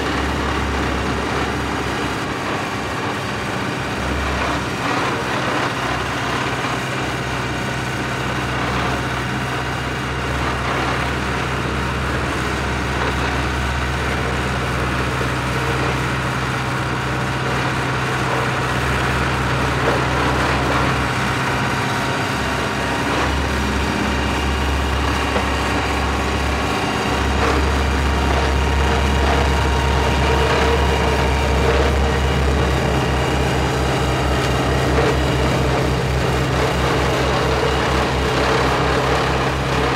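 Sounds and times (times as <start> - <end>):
deep vibration rumble: 0.0 - 39.9
roller engine humming: 0.0 - 39.9.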